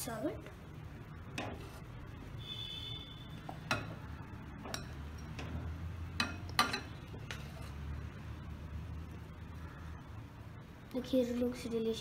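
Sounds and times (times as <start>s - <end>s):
steel ladle clinking on bowl: 6.2s - 7.0s.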